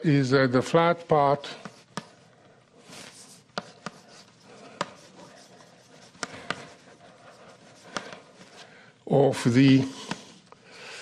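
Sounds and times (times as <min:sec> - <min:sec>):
chalk tapping on board: 0:01.6 - 0:02.2, 0:03.3 - 0:08.4
chalk scratching on blackboard: 0:02.8 - 0:08.7.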